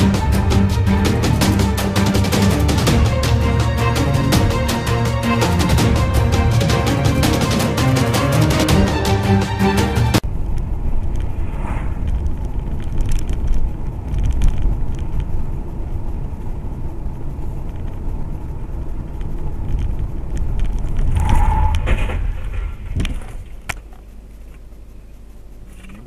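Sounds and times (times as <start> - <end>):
music: 0.0 - 10.2
car road and engine rumble: 10.2 - 26.0.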